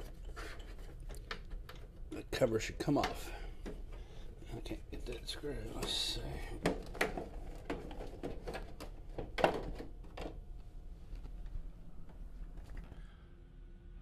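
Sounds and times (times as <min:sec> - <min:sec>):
plastic cover clicks and knocks: 0:06.6 - 0:10.4.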